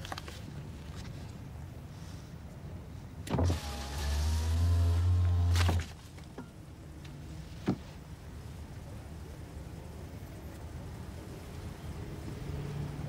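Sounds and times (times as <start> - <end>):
electric window motor humming: 3.3 - 5.8.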